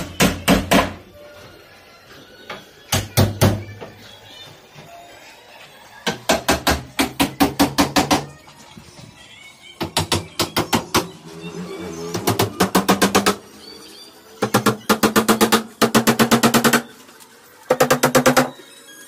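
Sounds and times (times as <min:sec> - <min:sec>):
hammer striking wooden boards: 0:00.1 - 0:01.0.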